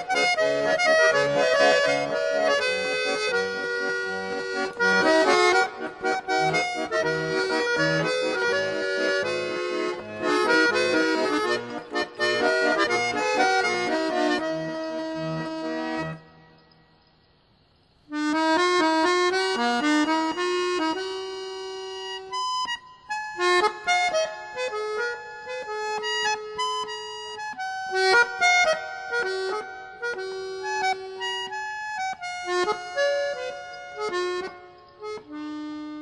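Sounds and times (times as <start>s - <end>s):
waltz on a free-reed instrument: 0.0s - 16.8s, 18.0s - 36.0s.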